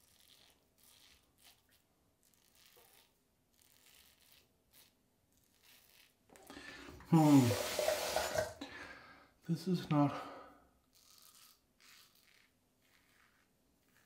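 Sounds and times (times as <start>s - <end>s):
razor scraping stubble: 0.0s - 6.5s, 10.9s - 14.0s.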